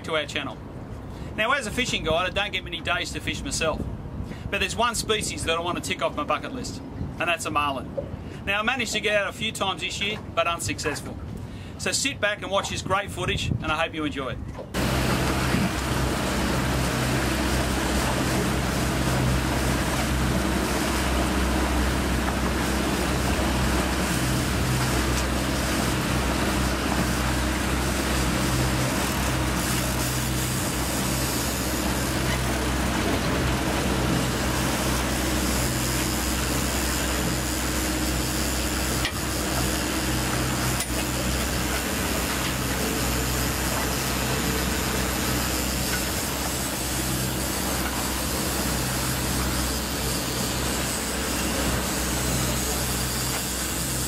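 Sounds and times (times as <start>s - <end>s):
outboard motor running: 14.6s - 54.0s
water rushing from wake: 14.6s - 54.0s.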